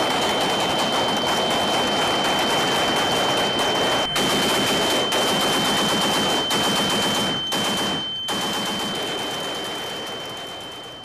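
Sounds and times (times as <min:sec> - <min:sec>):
automatic weapons fire: 0:00.0 - 0:10.8
high-pitched whine: 0:00.0 - 0:11.0.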